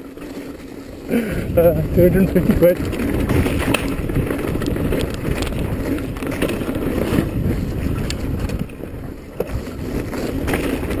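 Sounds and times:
bike clicks and rattles: 0.0s - 11.0s
bike tyres rumbling over ground: 0.0s - 11.0s
wind buffeting microphone: 0.9s - 11.0s.

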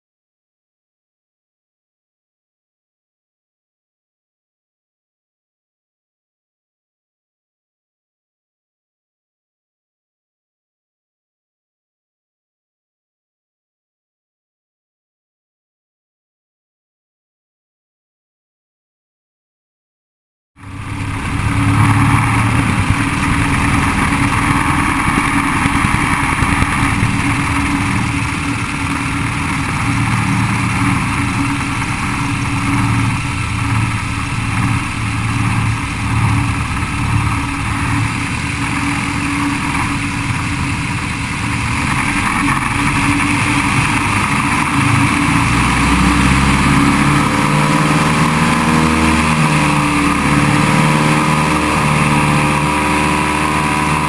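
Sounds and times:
propeller airplane engine running: 20.6s - 54.0s.

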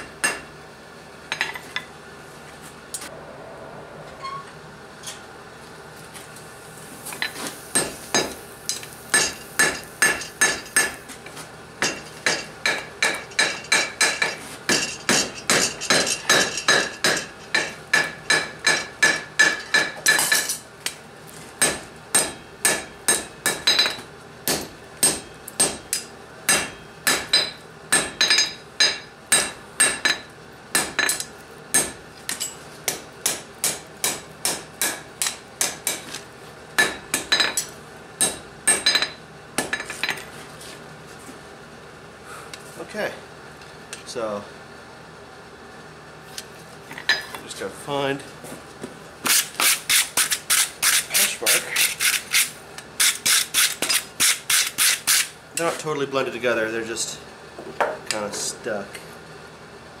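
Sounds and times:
hammer striking steel on anvil: 0.0s - 0.5s, 7.2s - 11.0s, 11.8s - 20.5s, 21.6s - 36.1s, 36.8s - 40.2s.

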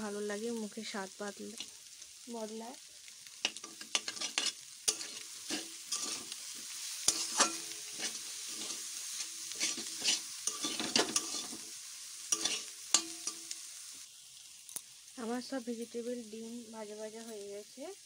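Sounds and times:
food sizzling in oil: 0.0s - 18.0s
metal spatula scraping a wok: 3.4s - 13.6s.

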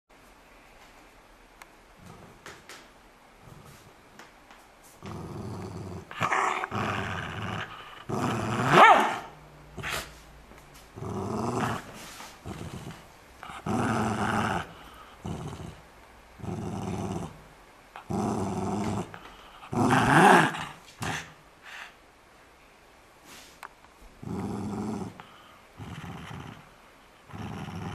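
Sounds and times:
dog growling: 5.0s - 10.1s, 11.0s - 21.4s, 24.2s - 27.9s.

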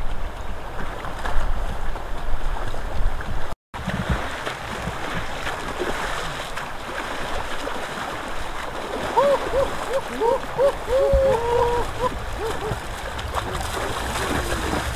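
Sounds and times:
wind rumble on microphone: 0.0s - 5.0s, 8.9s - 14.9s
water splashing and sloshing: 0.0s - 14.9s.

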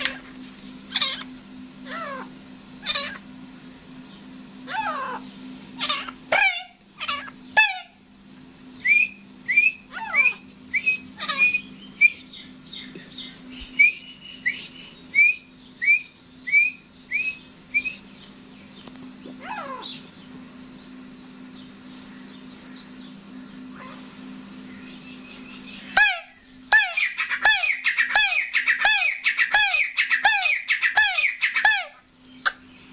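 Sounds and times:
low steady hum: 0.0s - 32.9s
francolin whistled calls: 8.8s - 18.2s, 24.8s - 31.7s.

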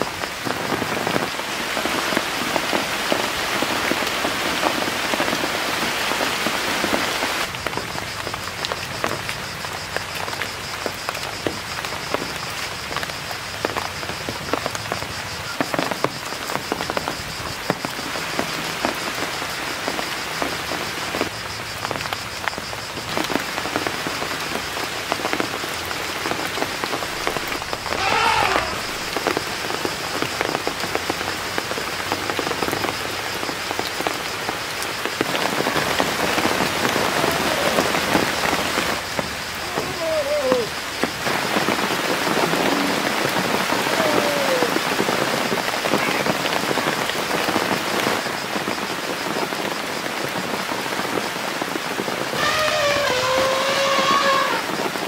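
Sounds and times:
rain falling on foliage: 0.0s - 55.0s
short gliding calls: 27.0s - 29.4s.

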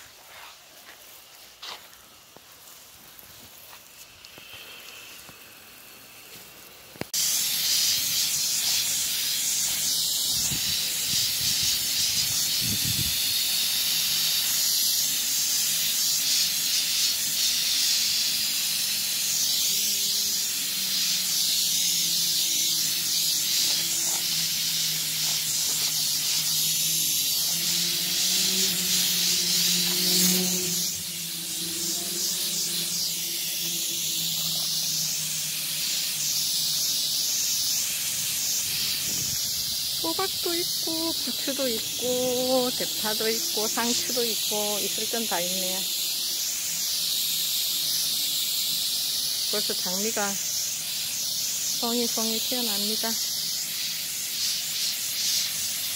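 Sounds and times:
hose nozzle hissing: 0.0s - 55.9s
water showering onto plants: 0.0s - 55.9s.

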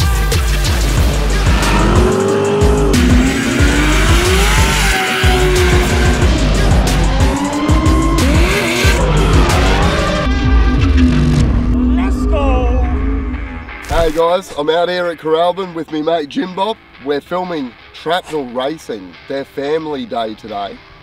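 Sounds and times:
music with heavy beat: 0.0s - 11.8s
race car engines revving: 0.7s - 12.1s.

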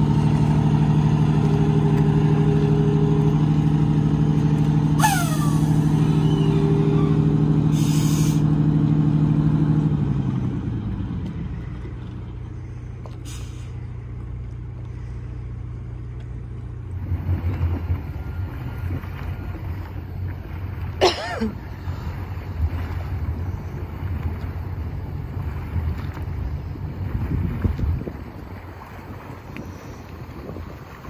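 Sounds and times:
large engine idling: 0.0s - 27.3s
brief falling squeal: 5.0s - 8.3s
air brake hisses: 7.7s - 8.5s, 13.2s - 13.8s.

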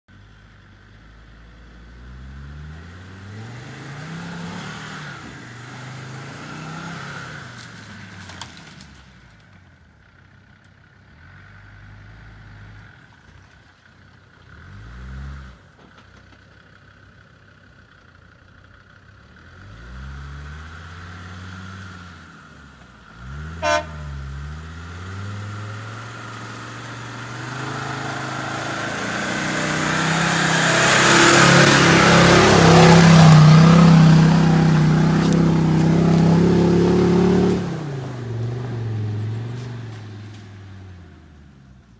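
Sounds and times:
diesel engine revving and idling: 0.1s - 13.4s, 14.0s - 41.9s.

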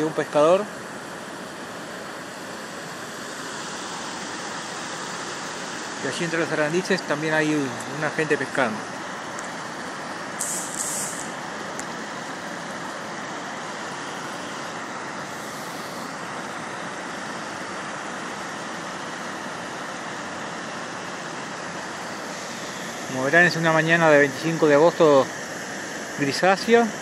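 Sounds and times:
river water rushing: 0.2s - 10.4s, 11.1s - 27.0s
brief high hiss: 10.4s - 11.4s.

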